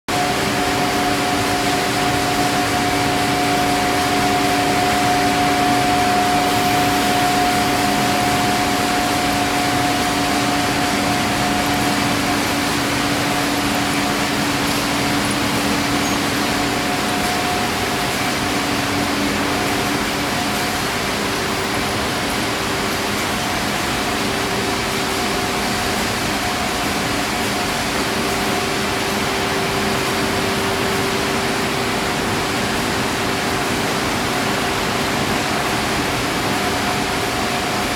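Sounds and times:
machinery humming tones: 0:00.1 - 0:37.9
machinery hiss: 0:00.2 - 0:21.3.

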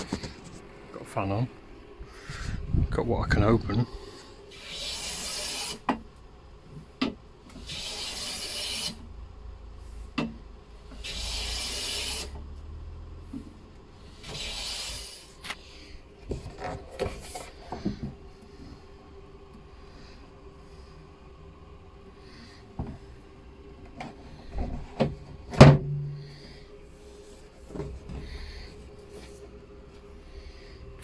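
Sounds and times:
hand plane shaving wood: 0:04.6 - 0:05.9, 0:07.6 - 0:09.0, 0:11.0 - 0:12.4, 0:14.1 - 0:15.5.

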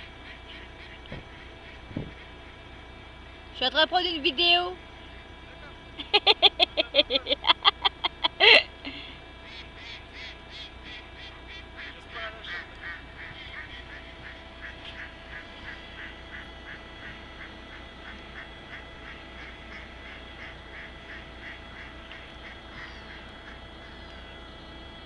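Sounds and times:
ducks quacking: 0:00.0 - 0:02.6, 0:09.4 - 0:24.3.

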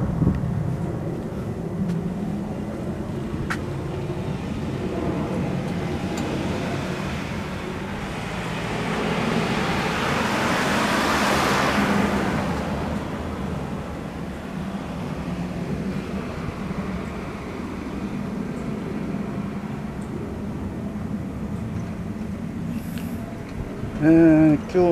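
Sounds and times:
road traffic rumble: 0:00.0 - 0:24.9
car passing close by: 0:03.5 - 0:20.0.

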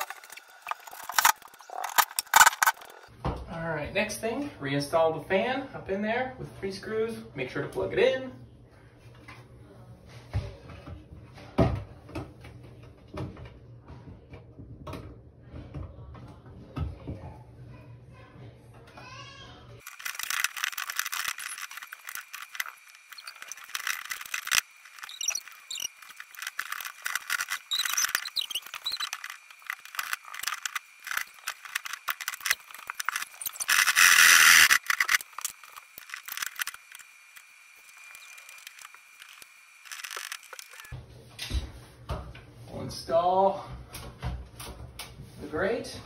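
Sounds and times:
plastic fan housing scraping: 0:20.0 - 0:37.0.

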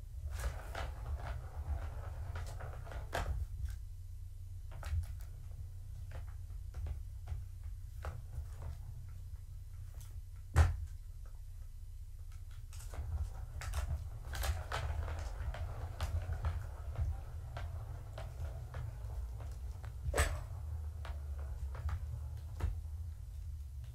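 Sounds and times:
steady low hum: 0:00.0 - 0:23.9
kittens scuffling and rattling: 0:00.3 - 0:03.8, 0:12.2 - 0:23.9.

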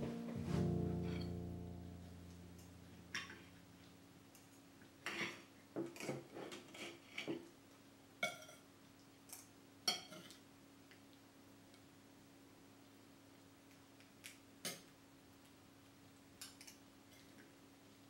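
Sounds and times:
cutlery scraping on a plate: 0:05.0 - 0:07.4.

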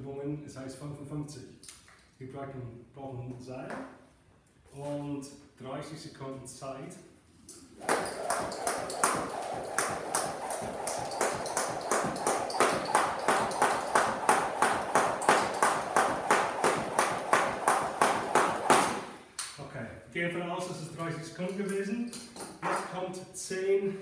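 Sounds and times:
jump rope striking mat: 0:07.8 - 0:19.2.

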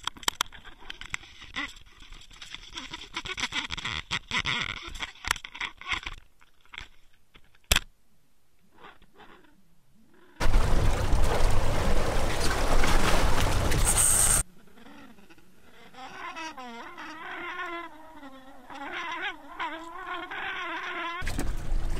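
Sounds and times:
underwater crackles and clicks: 0:00.0 - 0:07.8.

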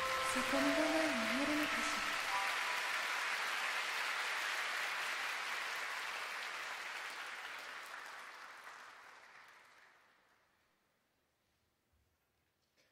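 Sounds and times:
audience applauding: 0:00.0 - 0:10.6.

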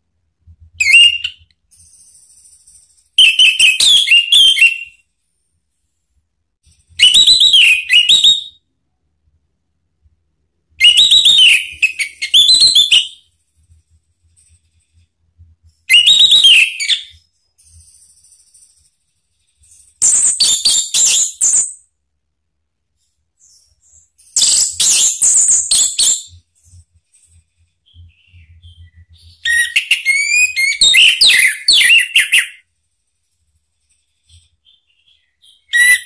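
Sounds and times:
thrush whistling song: 0:00.7 - 0:05.0, 0:06.7 - 0:08.7, 0:10.8 - 0:13.3, 0:15.8 - 0:18.9, 0:27.8 - 0:32.7, 0:34.6 - 0:36.0.

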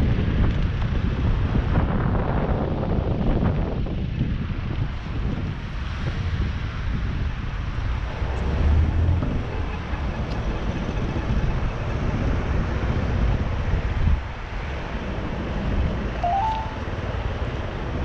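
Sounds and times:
wind buffeting microphone: 0:00.0 - 0:16.2
tyres and traffic rumble: 0:00.0 - 0:18.0.

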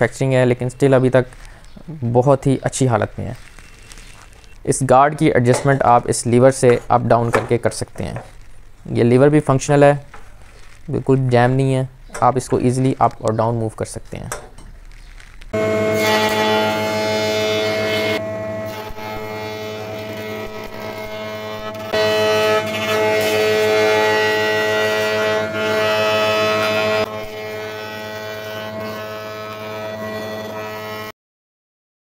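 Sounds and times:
cutterhead cutting wood: 0:15.5 - 0:31.1
planer motor humming: 0:15.6 - 0:31.1.

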